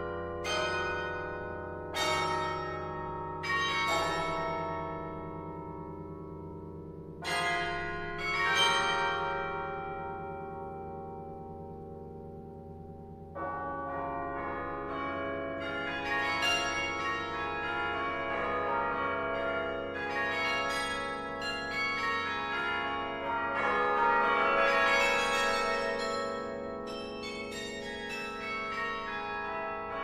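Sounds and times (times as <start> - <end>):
carillon bells ringing chords: 20.0 - 30.0.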